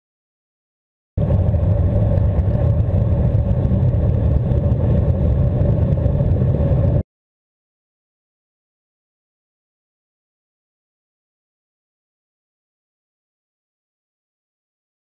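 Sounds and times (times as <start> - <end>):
underwater air bubbles rumbling: 1.2 - 7.0.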